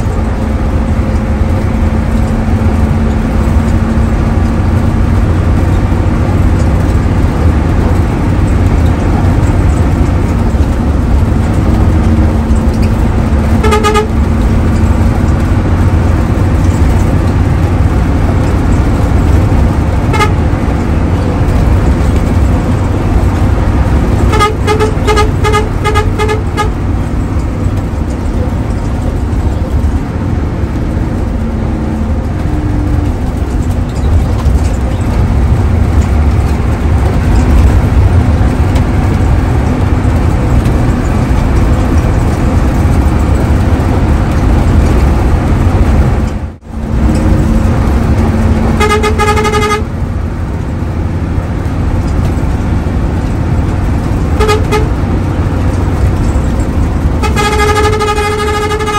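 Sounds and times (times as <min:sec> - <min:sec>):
bus engine and road noise: 0:00.0 - 0:58.9
horn honks: 0:13.4 - 0:14.4, 0:20.0 - 0:20.6, 0:24.2 - 0:26.9, 0:48.6 - 0:50.0, 0:54.4 - 0:55.0, 0:57.2 - 0:58.9.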